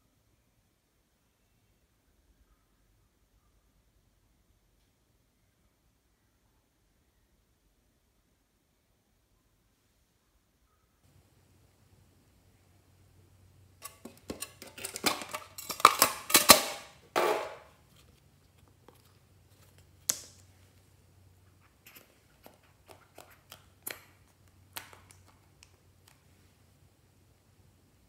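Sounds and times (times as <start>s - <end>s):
lid scraping: 13.8s - 17.7s.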